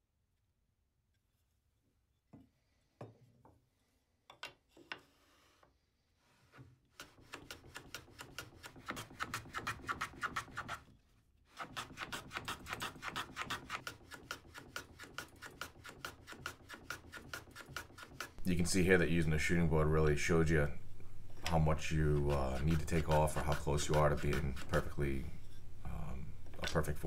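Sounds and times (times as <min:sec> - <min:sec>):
hand plane shaving strokes: 0:05.0 - 0:10.9, 0:11.5 - 0:18.4, 0:22.0 - 0:25.0.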